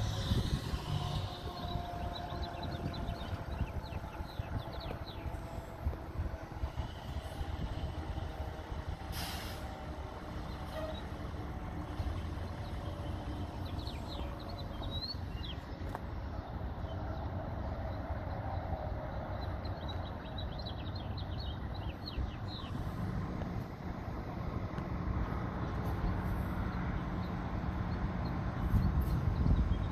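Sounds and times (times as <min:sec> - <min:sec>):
distant vehicle running: 0:00.0 - 0:29.9
short sharp hiss: 0:09.1 - 0:09.6
small birds chirping: 0:11.9 - 0:17.2, 0:19.3 - 0:22.9.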